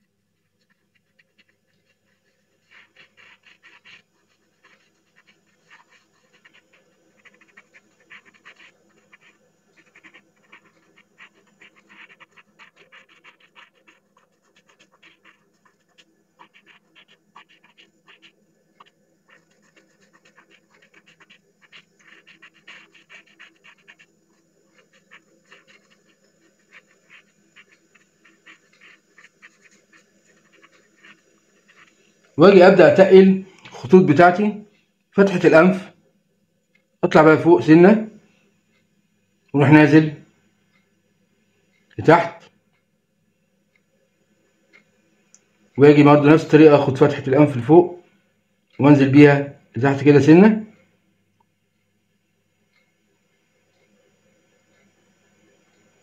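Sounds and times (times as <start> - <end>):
cotton bud rubbing on paper: 0.0 - 34.5, 42.0 - 42.5, 45.8 - 48.0.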